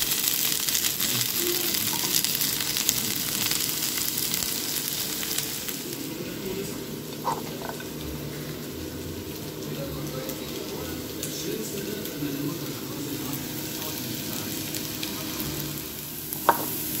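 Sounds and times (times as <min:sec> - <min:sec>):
potato slices sizzling in a pan: 0:00.0 - 0:17.0.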